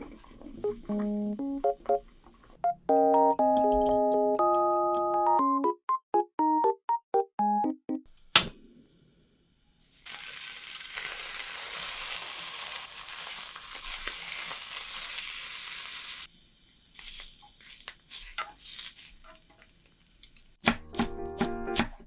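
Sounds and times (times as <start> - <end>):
ham sizzling in a frying pan: 9.8 - 20.6.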